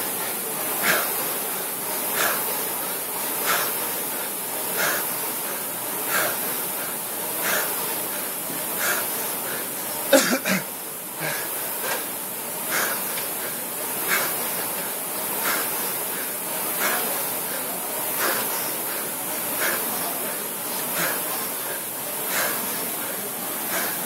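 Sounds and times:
rowing machine flywheel whooshing: 0.0 - 10.1, 11.0 - 24.0
hard breathing: 0.0 - 24.0
person grunting: 10.1 - 11.5.

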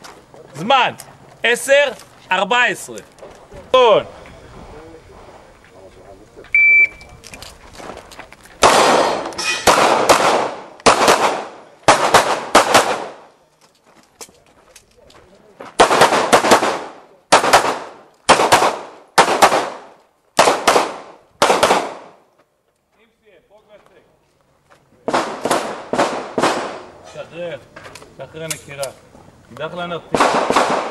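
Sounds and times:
pistol shots with echo: 8.6 - 13.3, 15.8 - 22.2, 25.1 - 26.9, 30.1 - 30.9.

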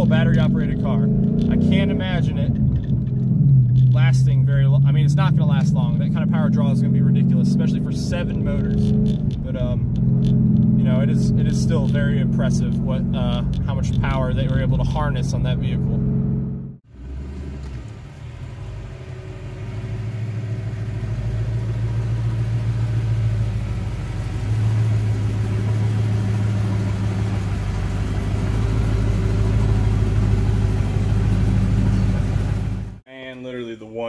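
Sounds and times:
car engine idling: 16.4 - 33.0.

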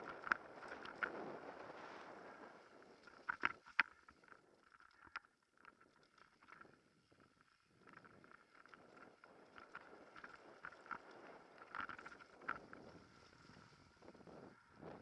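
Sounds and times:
wind on microphone: 9.9 - 15.0.

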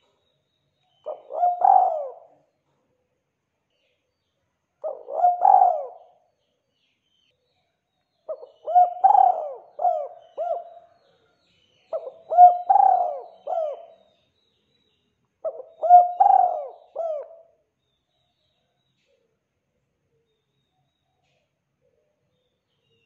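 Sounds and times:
dove cooing: 1.1 - 2.4, 4.8 - 6.2, 8.3 - 11.0, 11.9 - 14.0, 15.4 - 17.5.

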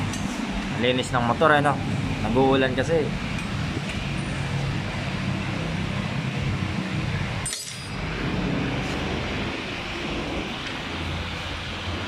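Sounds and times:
metallic tool clink: 7.4 - 8.0.

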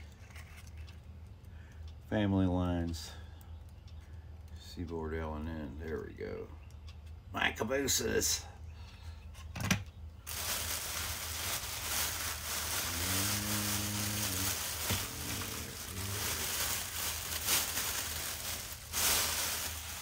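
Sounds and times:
rustling and handling noise: 0.0 - 1.4, 9.3 - 20.0.

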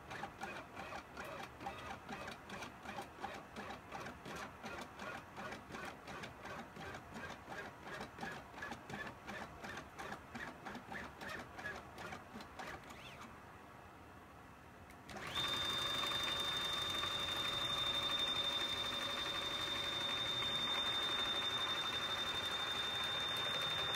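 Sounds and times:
plotter motors whirring: 15.1 - 23.9.

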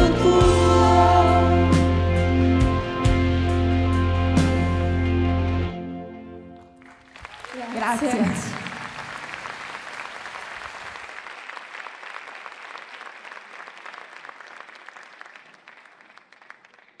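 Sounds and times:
audience applauding: 6.6 - 17.0.

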